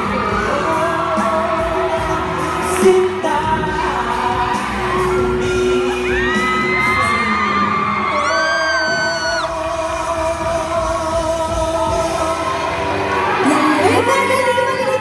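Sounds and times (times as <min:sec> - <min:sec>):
amplified backing music: 0:00.0 - 0:15.0
cast singing pop-rock song: 0:00.0 - 0:15.0.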